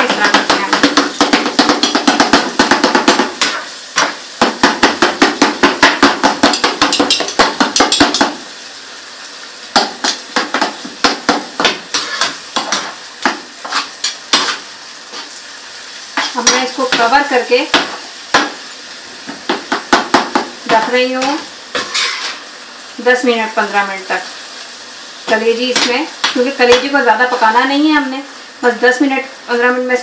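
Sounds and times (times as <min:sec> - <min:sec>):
food sizzling: 0:00.0 - 0:30.0
metal spoon clacking against pan: 0:05.8 - 0:08.4.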